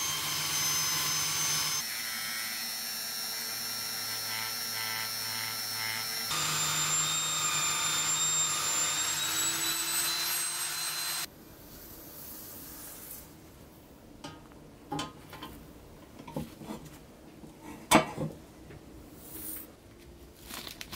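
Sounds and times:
buffing wheel motor whine: 6.3 - 9.2.

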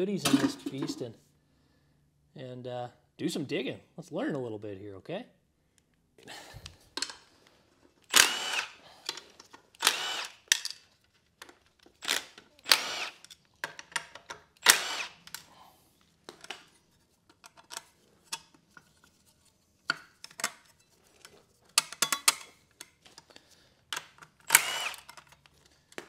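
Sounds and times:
cordless power tool spinning: 8.1 - 8.8, 9.8 - 10.5, 12.0 - 13.3, 14.6 - 15.3, 24.5 - 25.1.

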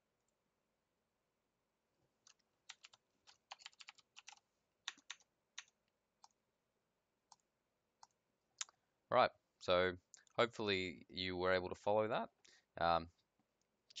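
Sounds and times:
computer keyboard clicks: 2.3 - 6.4.

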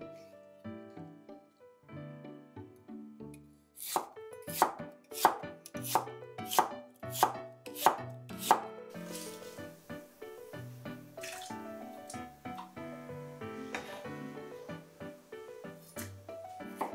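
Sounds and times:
knife chopping on cutting board: 3.8 - 8.7.

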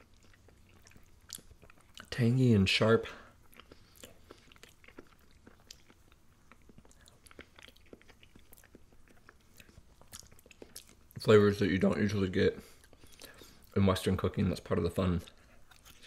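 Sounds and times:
person chewing food: 0.0 - 2.2, 3.0 - 11.2, 12.5 - 13.8, 15.2 - 16.0.

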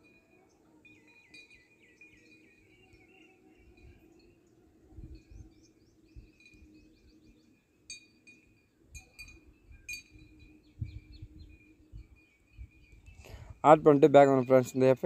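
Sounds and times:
small birds chirping: 0.0 - 15.0
sharp clinks: 7.9 - 10.7.

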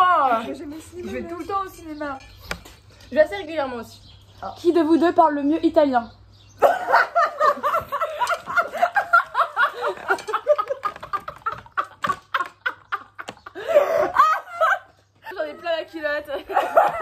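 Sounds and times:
young women laughing: 6.6 - 17.0.

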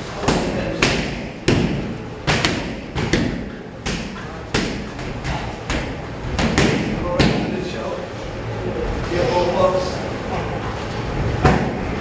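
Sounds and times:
strikes smacking pads: 0.2 - 7.5.

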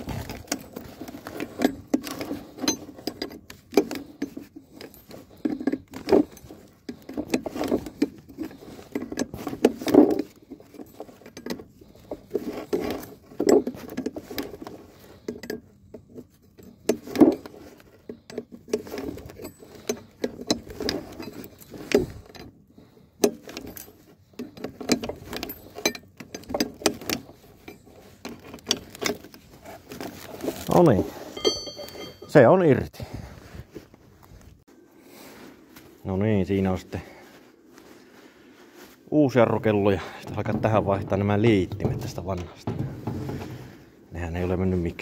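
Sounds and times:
hand tools clinking on metal: 0.0 - 32.5.

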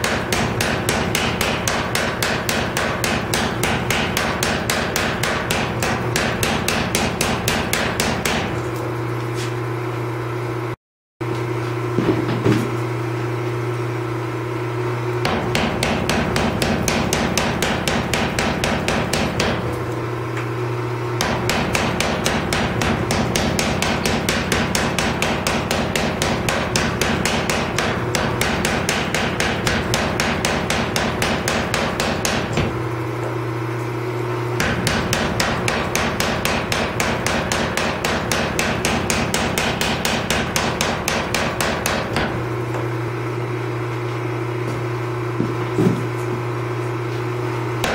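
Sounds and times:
power hammer pounding hot steel: 0.0 - 8.6, 15.2 - 20.3, 21.0 - 33.1, 34.6 - 43.2
steady hum: 0.0 - 10.6, 11.6 - 47.9.

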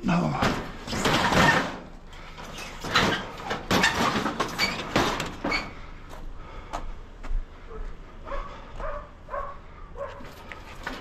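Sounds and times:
sheet metal clattering and scraping: 0.4 - 5.8.

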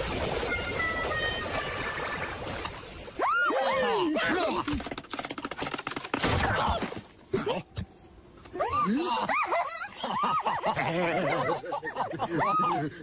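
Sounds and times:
fast run of clicks: 4.6 - 6.2.

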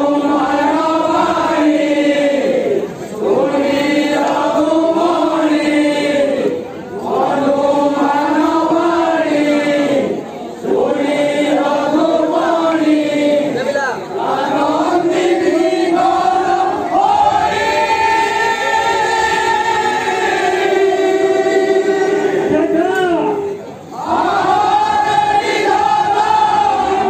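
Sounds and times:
group of men singing: 0.0 - 22.8, 24.0 - 27.0.

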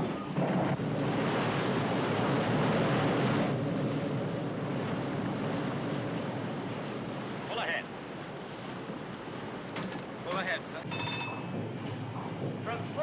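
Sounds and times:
steam engine rushing noise: 0.0 - 7.6, 10.8 - 13.0
sea noise: 0.0 - 13.0
wind: 0.0 - 13.0.

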